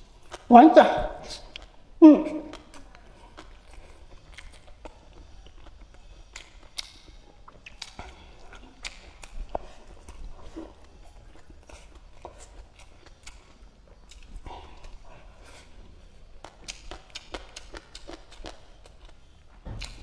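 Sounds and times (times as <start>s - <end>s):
person chewing food: 0.0s - 0.5s, 1.3s - 20.0s
wet mouth clicks and smacks: 4.3s - 9.6s, 16.4s - 19.2s, 19.8s - 20.0s.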